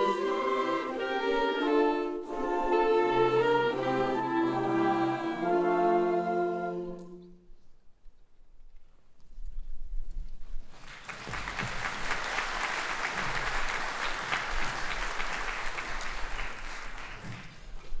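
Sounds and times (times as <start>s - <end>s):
audience applauding: 10.7s - 17.9s.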